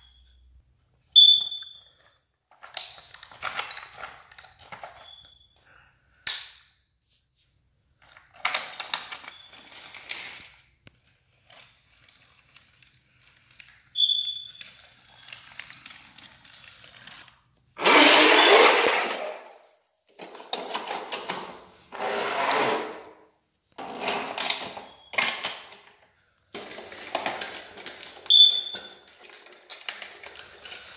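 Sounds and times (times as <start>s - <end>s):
toy trains clattering and rustling: 1.8s - 5.2s, 8.0s - 19.4s, 23.8s - 30.9s
high squeak: 14.0s - 14.7s, 17.8s - 19.1s, 28.3s - 28.9s.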